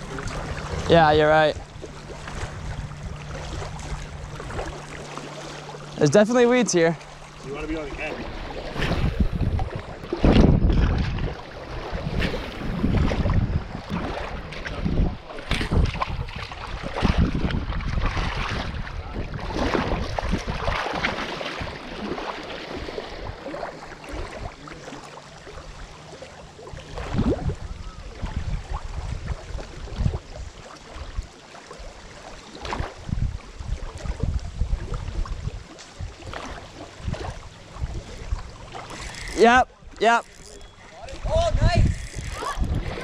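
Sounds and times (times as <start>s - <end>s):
wind rumbling on microphone: 0.0s - 24.8s, 25.5s - 43.0s
water splashing around wading legs: 0.0s - 43.0s.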